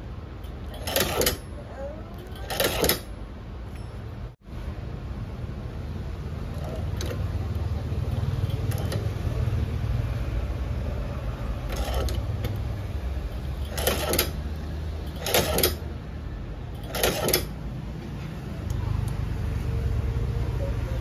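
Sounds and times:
sewing machine needle stitching: 0:00.6 - 0:01.6, 0:02.2 - 0:03.1, 0:08.5 - 0:09.2, 0:11.6 - 0:12.6, 0:13.6 - 0:14.5, 0:15.1 - 0:15.8, 0:16.8 - 0:17.6
sewing machine motor humming: 0:11.2 - 0:15.9, 0:16.8 - 0:17.6.

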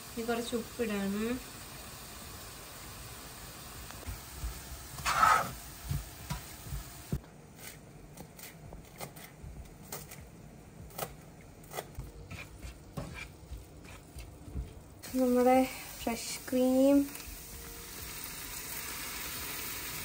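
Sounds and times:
onion and garlic frying: 0:00.0 - 0:07.8, 0:11.8 - 0:20.0
spatula stirring in pan: 0:04.4 - 0:06.9, 0:12.0 - 0:14.7
knife chopping on cutting board: 0:10.9 - 0:14.4.

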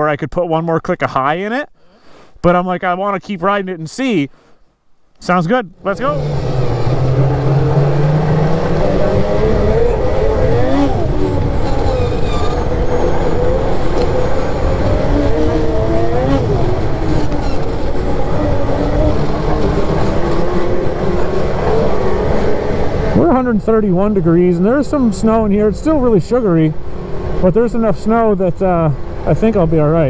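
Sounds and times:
track and wind noise: 0:05.8 - 0:30.0
snowmobile engine running: 0:05.9 - 0:11.6, 0:13.4 - 0:23.4.

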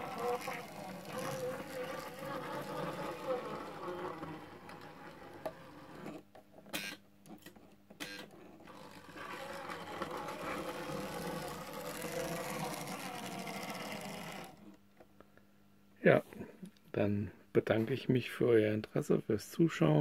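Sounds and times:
model train motor whirring: 0:00.0 - 0:07.0, 0:08.0 - 0:14.8.

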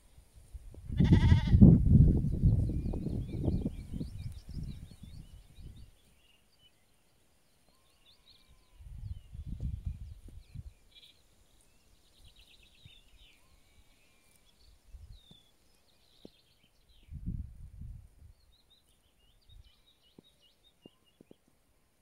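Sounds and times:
low rumble on microphone: 0:00.7 - 0:05.9
songbirds chirping and trilling: 0:01.0 - 0:17.4, 0:18.2 - 0:21.7.

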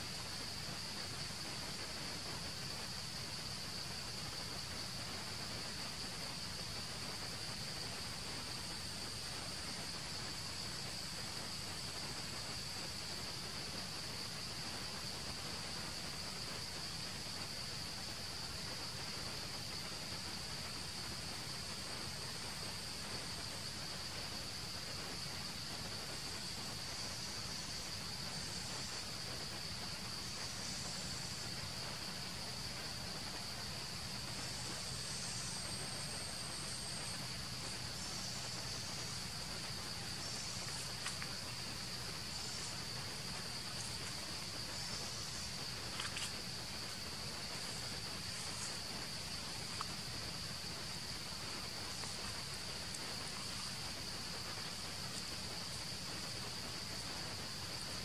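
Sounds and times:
soft background hiss: 0:00.0 - 0:58.0
high-pitched insect drone: 0:25.5 - 0:58.0.

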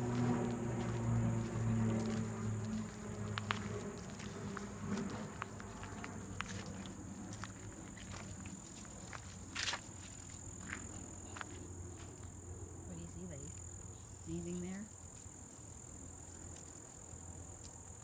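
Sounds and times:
footsteps on gravel: 0:00.0 - 0:12.3
insect chorus trilling: 0:00.0 - 0:18.0.

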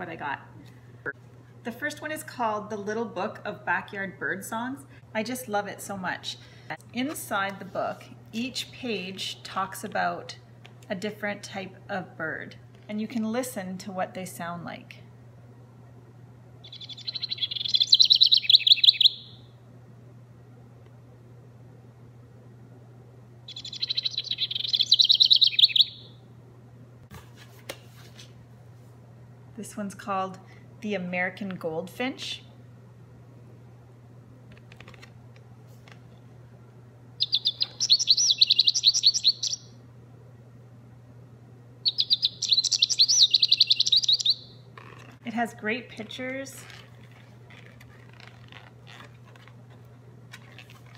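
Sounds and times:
wren song through small speaker: 0:16.6 - 0:19.5, 0:23.4 - 0:26.2, 0:37.2 - 0:39.8, 0:41.8 - 0:49.4.

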